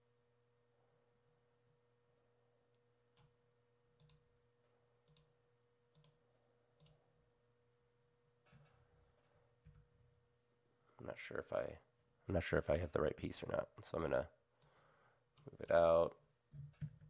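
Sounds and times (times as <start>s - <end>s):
faint steady hum: 0.0s - 17.0s
computer mouse clicks: 4.0s - 4.2s, 5.0s - 5.3s, 5.9s - 6.2s, 6.8s - 7.0s.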